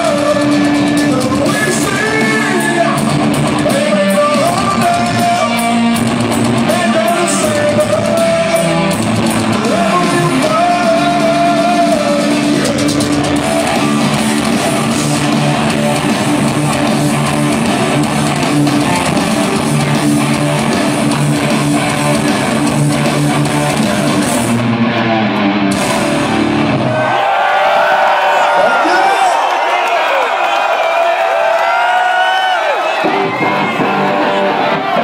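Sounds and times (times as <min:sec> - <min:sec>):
bass guitar chords: 0:00.0 - 0:27.2
live metal band playing: 0:00.0 - 0:27.2, 0:32.9 - 0:35.0
distorted electric guitars: 0:00.0 - 0:27.3, 0:32.8 - 0:35.0.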